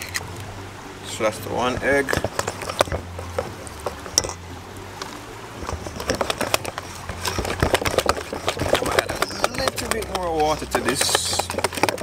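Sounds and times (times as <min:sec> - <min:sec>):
whisk wires clicking on bowl: 0:05.6 - 0:12.0
whisk beating batter in bowl: 0:06.1 - 0:12.0.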